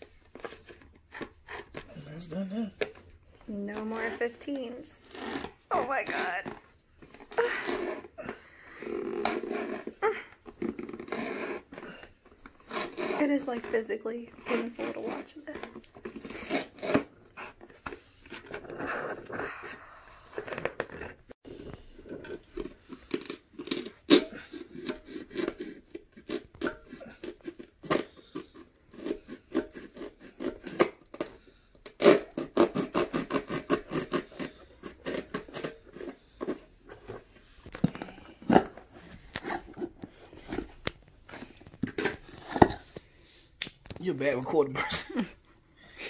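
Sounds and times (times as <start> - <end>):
rasping tearing strokes: 3.8 - 19.6, 20.2 - 36.6
knife cutting speaker cone: 5.0 - 19.4, 20.4 - 43.0.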